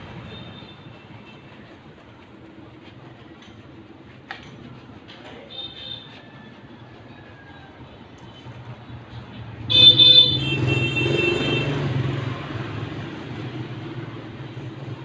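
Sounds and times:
vehicle passing: 7.7s - 15.0s
vehicle horn honking: 9.7s - 12.0s.

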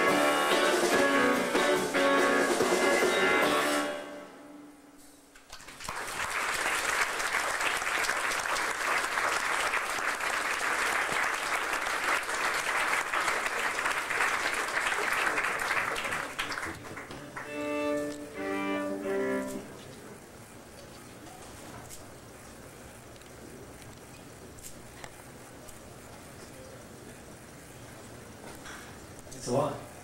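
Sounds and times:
audience clapping: 5.3s - 18.2s
bowed string notes: 17.2s - 19.8s.

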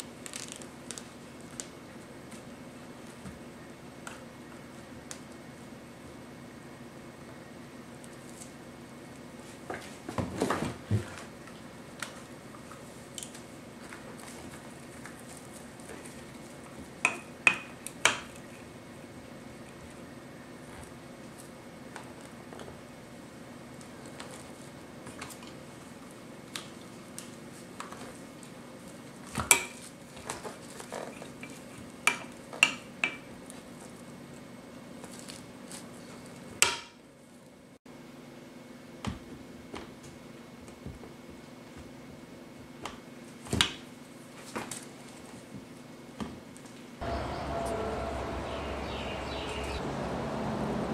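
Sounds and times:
faint steady hum: 0.0s - 50.9s
steady low hum: 46.9s - 50.9s.

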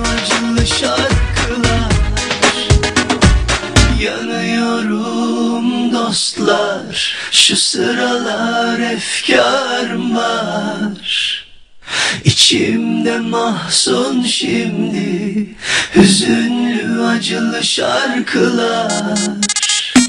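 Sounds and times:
man singing pop song: 0.0s - 2.9s, 15.9s - 16.6s.

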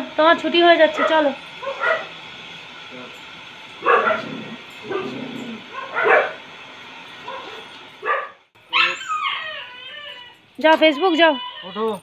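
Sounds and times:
dog yipping: 7.3s - 12.0s.

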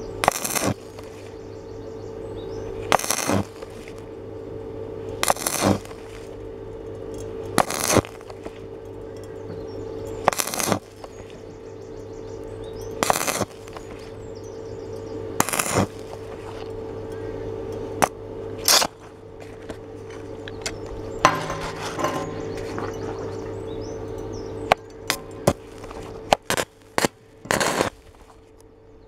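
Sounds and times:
welding arc crackling: 0.0s - 1.6s, 2.6s - 9.1s, 9.8s - 23.7s, 24.5s - 28.7s
steady low hum: 0.0s - 29.0s.

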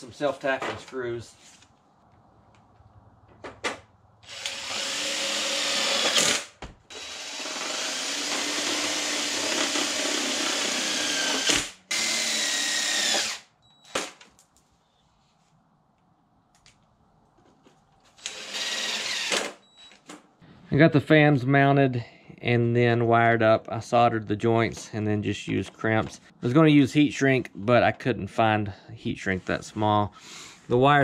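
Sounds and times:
cordless drill driving screws: 4.2s - 14.0s, 18.2s - 19.6s.

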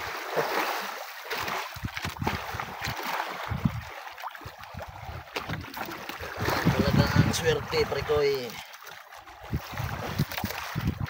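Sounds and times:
water sloshing against boat hull: 0.0s - 11.0s
wind buffeting microphone: 1.8s - 8.3s, 9.3s - 11.0s.

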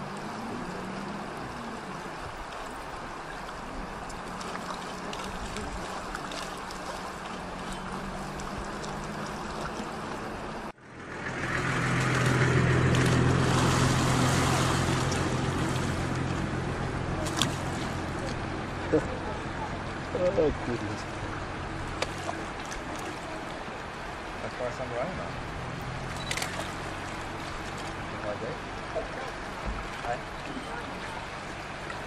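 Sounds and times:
low motor hum: 0.0s - 24.4s.

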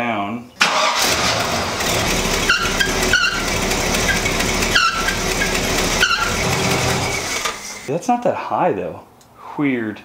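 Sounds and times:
engine running: 0.7s - 7.9s.

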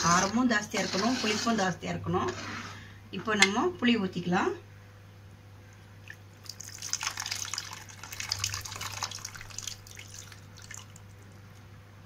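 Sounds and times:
liquid dripping: 5.7s - 11.7s
liquid pouring into pan: 6.4s - 11.1s.

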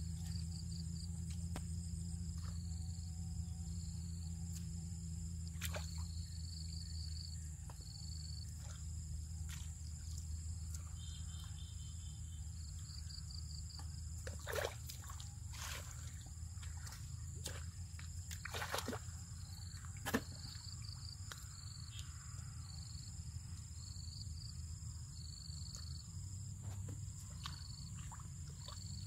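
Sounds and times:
insects chirping in trills: 0.0s - 29.0s
low steady hum: 0.0s - 29.0s
hands sloshing in muddy water: 5.5s - 6.2s, 13.7s - 21.4s, 25.8s - 29.0s
water splashes: 5.5s - 6.2s, 14.2s - 19.2s, 26.6s - 29.0s.

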